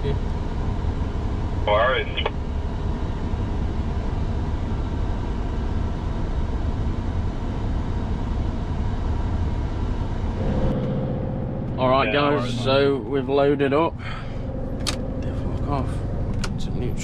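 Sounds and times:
diesel engine idling: 8.8s - 17.0s.

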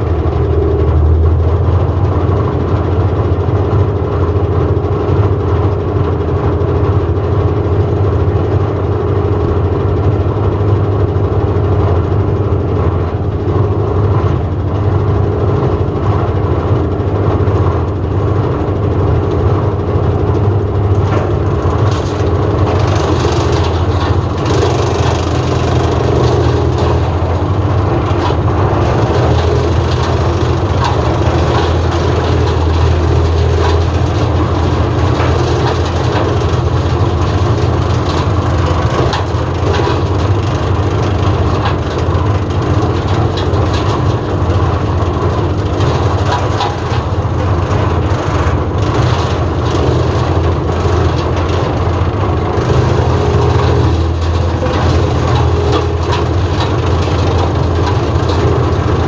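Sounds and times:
diesel engine drone: 0.0s - 59.0s
wood chipper cracking branches: 0.0s - 59.0s.

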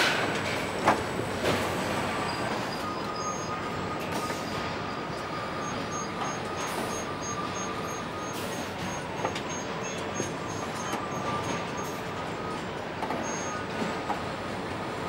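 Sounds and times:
production-line machinery din: 0.0s - 15.0s
thin high beep pulsing: 2.3s - 12.6s, 13.2s - 13.7s.

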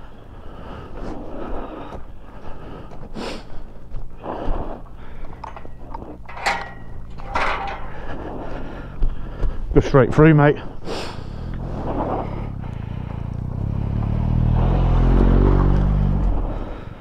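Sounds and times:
metal gate clanking and rattling: 5.2s - 8.5s
motorcycle engine idling: 5.2s - 9.8s, 12.4s - 14.3s.

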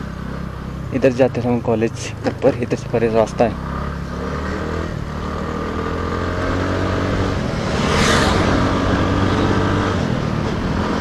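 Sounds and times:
road and wind noise: 0.0s - 11.0s
brief whoosh: 7.6s - 8.7s.

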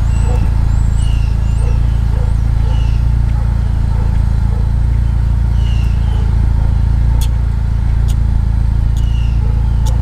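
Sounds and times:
vehicle engine humming: 0.0s - 10.0s
light ticks: 8.0s - 8.2s, 8.9s - 9.2s.

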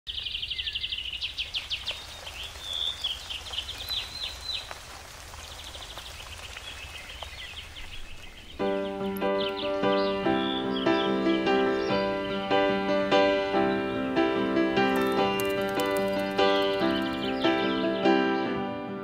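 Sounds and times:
birds trilling and chirping: 0.1s - 18.2s
rainwater dripping: 1.1s - 9.8s, 14.8s - 17.6s.

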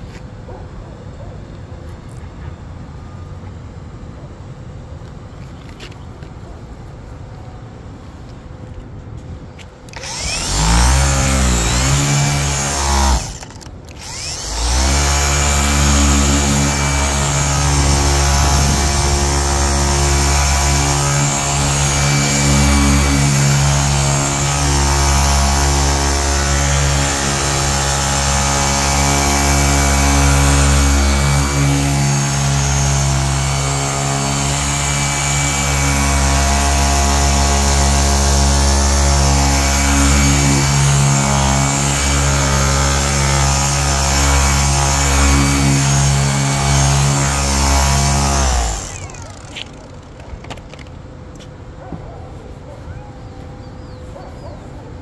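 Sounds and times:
electric polisher motor: 9.9s - 50.9s.

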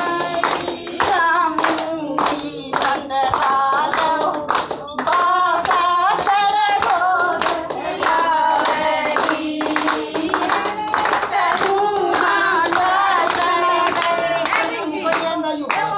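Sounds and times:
rhythmic hand clapping: 0.0s - 15.9s
women singing in unison: 0.0s - 15.9s.

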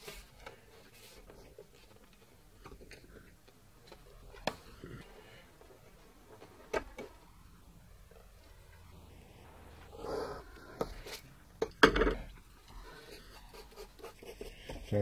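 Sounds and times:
pencil scratching on paper: 12.8s - 15.0s.

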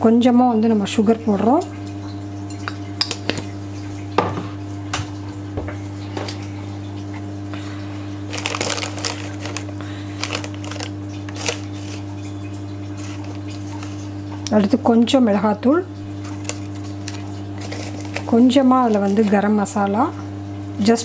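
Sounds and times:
steady low hum: 0.0s - 21.0s
spoon clinking and scraping containers: 8.3s - 12.3s, 12.9s - 14.0s, 16.3s - 19.3s.

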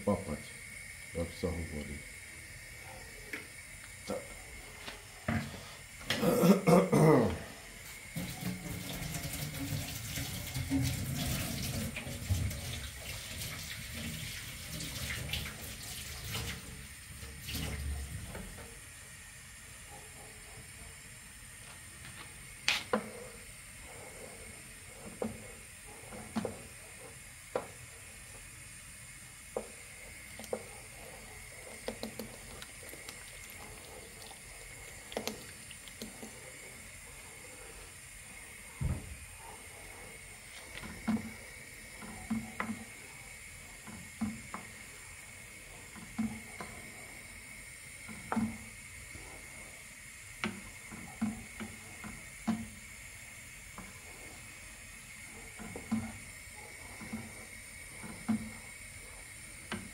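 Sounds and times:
cream pouring: 7.8s - 18.0s, 31.4s - 37.0s
sauce bubbling in a frying pan: 7.8s - 19.8s, 24.4s - 37.1s, 40.8s - 59.9s
sauce being stirred: 29.3s - 37.1s, 40.5s - 58.8s.

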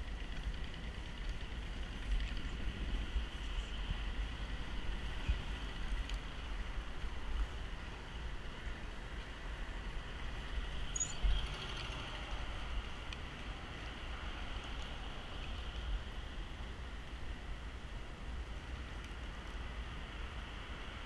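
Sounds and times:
short high chirp: 11.0s - 11.2s.

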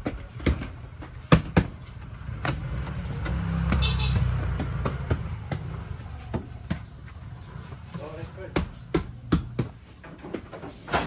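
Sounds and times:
vehicle passing: 1.8s - 9.3s.

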